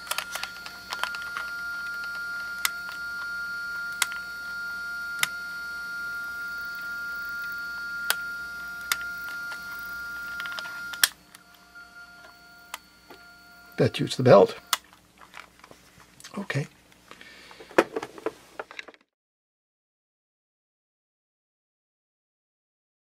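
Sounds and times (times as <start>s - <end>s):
faint motor hum: 0.0s - 18.7s.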